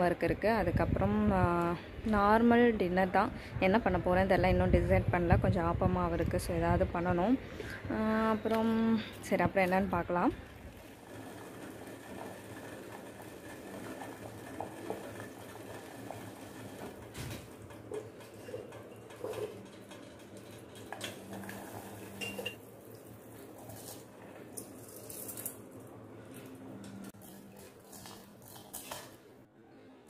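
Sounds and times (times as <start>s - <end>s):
water bubbling in a pot: 10.4s - 20.2s
metal kitchenware clinking: 17.2s - 22.6s.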